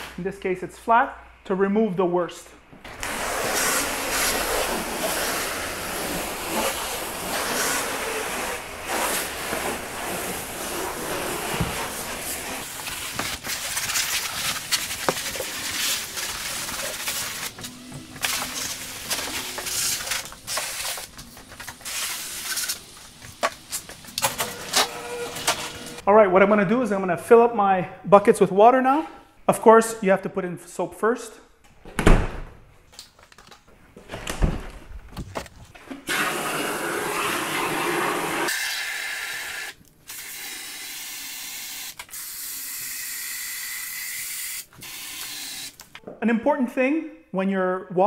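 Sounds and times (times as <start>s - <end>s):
hose spray on car: 3.0s - 12.7s.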